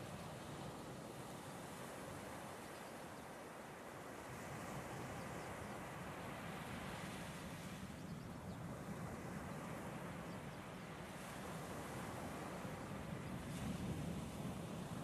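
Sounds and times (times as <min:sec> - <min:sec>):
distant surf: 0:00.0 - 0:15.0
wind: 0:00.0 - 0:15.0.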